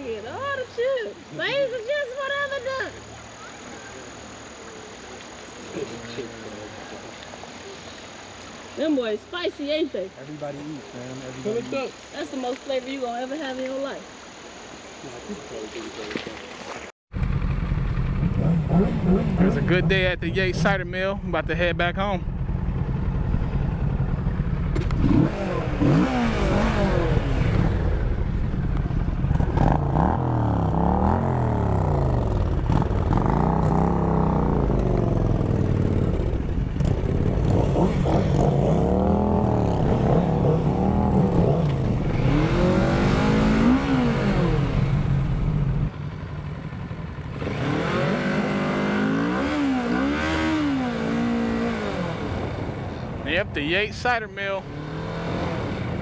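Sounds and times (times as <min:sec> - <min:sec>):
motorcycle engine revving: 0:17.1 - 0:56.0.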